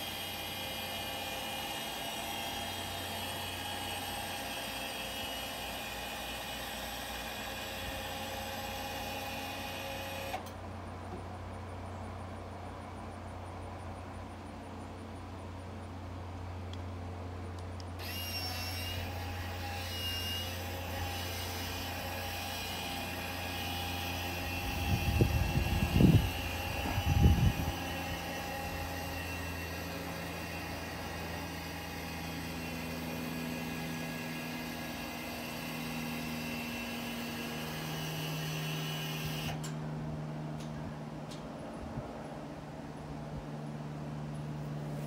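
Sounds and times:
electric motor humming and whining: 0.0 - 10.6, 17.9 - 40.7.

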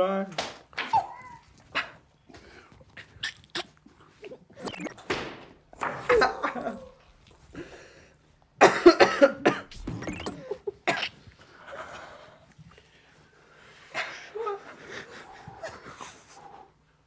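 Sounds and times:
held-in laughter: 6.0 - 7.1
people coughing and spluttering: 8.6 - 11.3.

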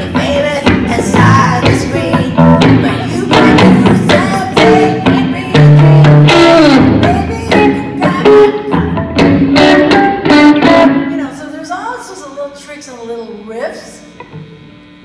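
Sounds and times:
electric guitar solo: 0.0 - 15.0.

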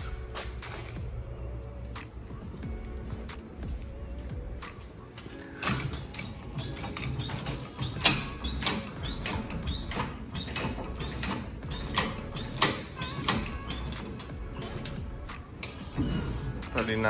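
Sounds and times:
quiet background music: 0.0 - 17.0
floor jack clicking and creaking: 5.5 - 17.0
short squeaks: 5.6 - 16.7.

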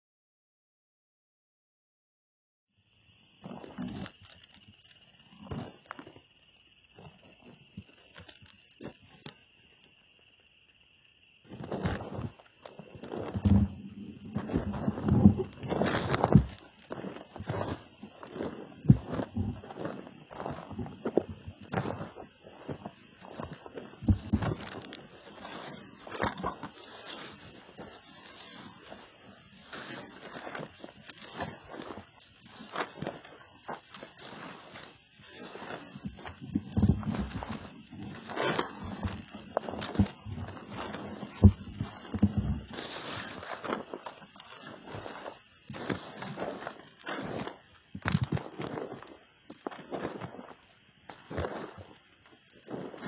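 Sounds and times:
insects buzzing: 2.8 - 53.0
boots scuffing on gravel: 11.5 - 53.0
grass swishing: 23.2 - 47.5.

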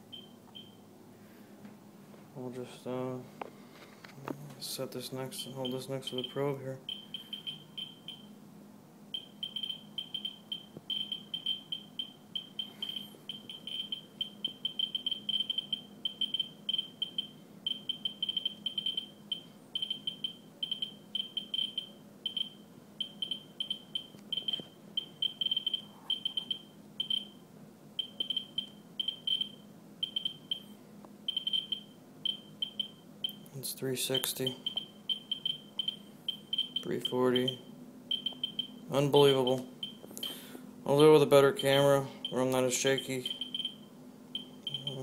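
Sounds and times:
geiger counter clicking: 5.6 - 8.2, 9.2 - 27.3, 28.0 - 30.7, 31.3 - 33.5, 34.6 - 38.8, 43.2 - 43.8, 44.4 - 45.0.

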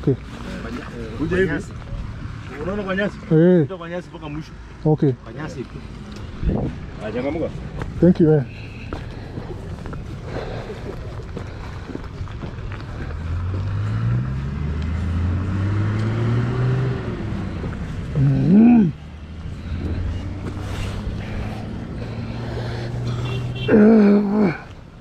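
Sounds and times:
vehicle engine accelerating: 11.6 - 24.6.

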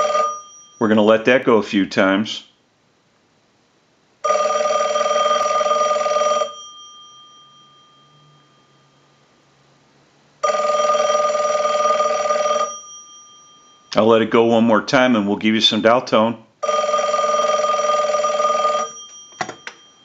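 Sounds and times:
telephone bell ringing: 0.0 - 1.0, 4.2 - 9.3, 10.4 - 13.9, 16.6 - 20.0.

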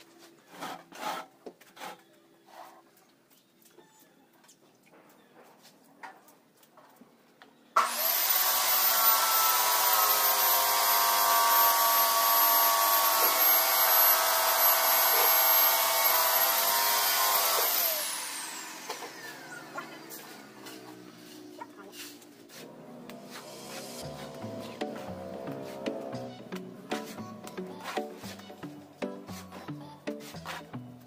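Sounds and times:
electric motor whining: 7.8 - 21.2, 22.7 - 26.6.

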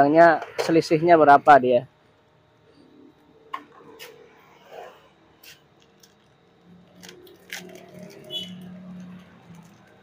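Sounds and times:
plastic packet crinkling: 5.8 - 10.0.

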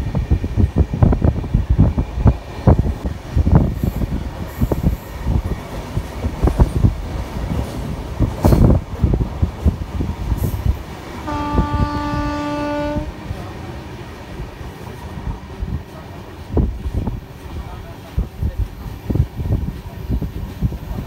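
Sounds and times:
locomotive horn blast: 11.2 - 13.2.

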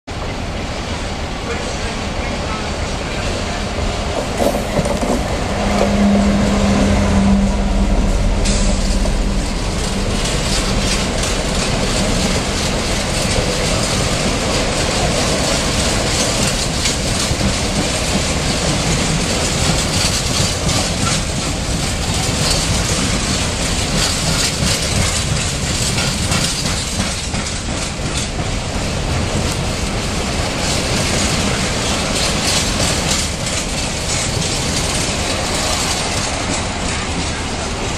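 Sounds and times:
diesel locomotive engine passing: 0.1 - 37.9
freight wagons clattering over rail joints: 8.3 - 37.9.

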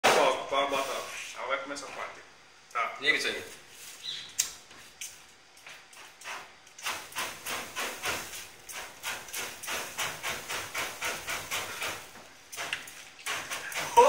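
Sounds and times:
aerosol spray igniting whooshes: 6.0 - 14.0.

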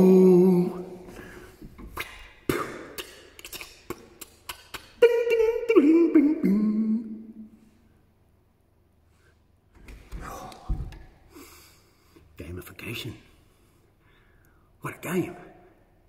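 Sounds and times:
man making vocal sound effects: 1.9 - 7.2.

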